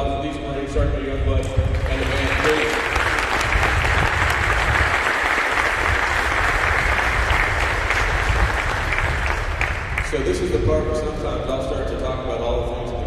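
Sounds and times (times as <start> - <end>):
audience applauding: 1.8 - 10.3.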